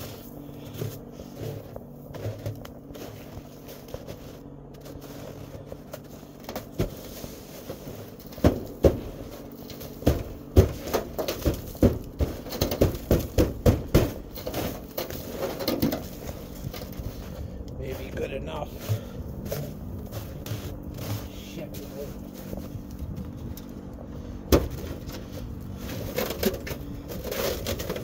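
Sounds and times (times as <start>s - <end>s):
snow swept off truck hood: 0.0s - 10.0s, 18.0s - 22.8s.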